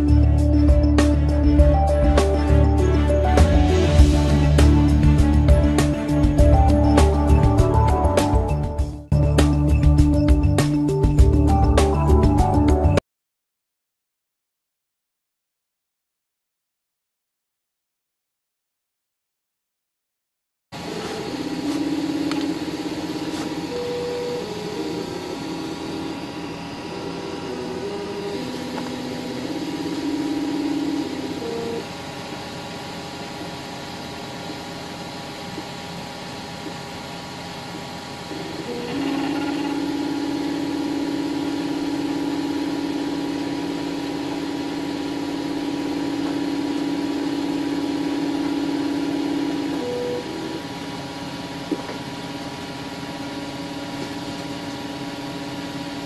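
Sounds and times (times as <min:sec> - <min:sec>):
fan hum: 0:20.8 - 0:56.0
stepper motors whining: 0:20.8 - 0:56.0.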